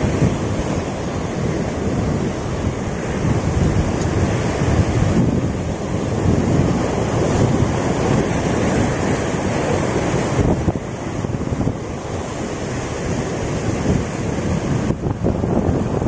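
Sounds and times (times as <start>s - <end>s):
waves on rocky shore: 0.0s - 16.0s
wind buffeting microphone: 0.0s - 16.0s.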